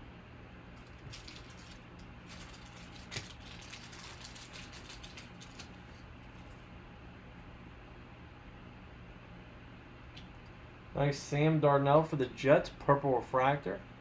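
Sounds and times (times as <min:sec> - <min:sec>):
plastic wrapping rustling: 0:00.8 - 0:06.6.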